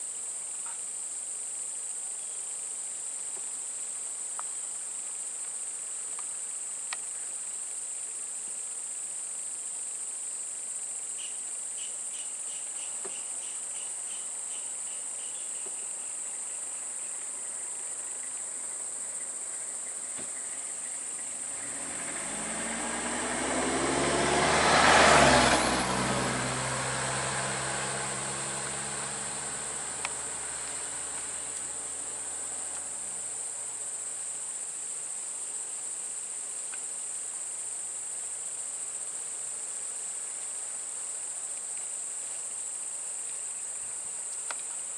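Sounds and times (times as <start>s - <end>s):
high-pitched insect chorus: 0.0s - 44.9s
motor vehicle passing: 21.2s - 33.4s.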